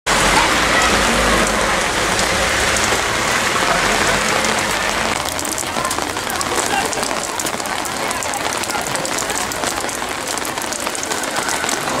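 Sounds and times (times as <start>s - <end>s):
heavy rain on pavement: 0.0s - 12.0s.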